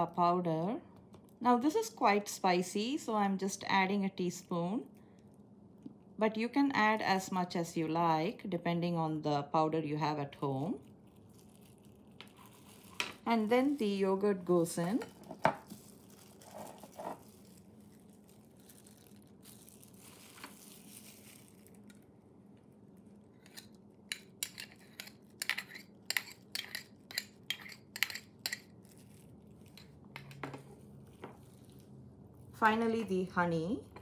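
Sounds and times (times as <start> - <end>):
metal spoon scraping ceramic bowl: 24.4 - 28.6.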